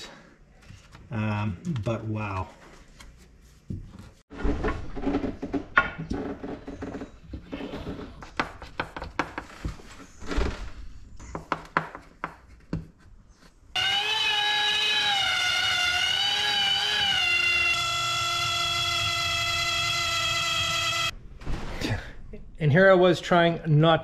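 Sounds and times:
power tool whining: 0:13.8 - 0:21.1.

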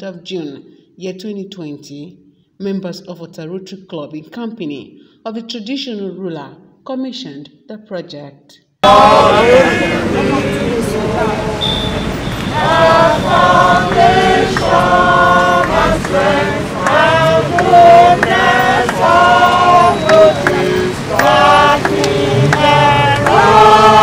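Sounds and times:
group of voices singing: 0:08.8 - 0:24.0.

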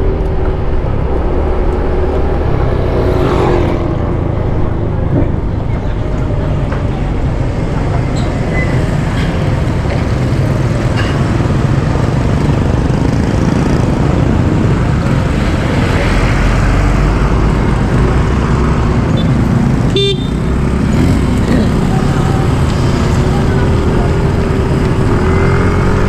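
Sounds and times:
vehicle road noise rumble: 0:00.0 - 0:26.0.

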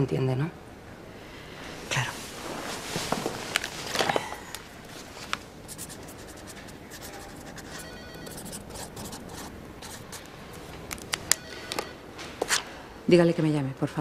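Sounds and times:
pen writing on paper: 0:05.7 - 0:10.2.

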